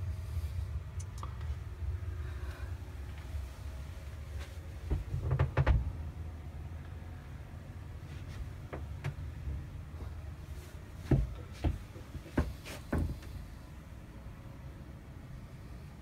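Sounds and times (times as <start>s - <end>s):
low steady hum: 0.0s - 16.0s
dull knocks and bumps: 4.8s - 6.0s, 8.6s - 9.4s, 11.0s - 13.4s.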